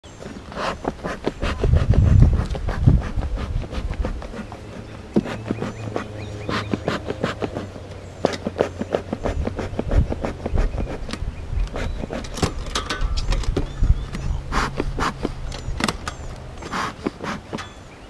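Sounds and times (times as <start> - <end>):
bees buzzing: 0.1 - 12.7
bee smoker clicks and knocks: 2.4 - 17.9.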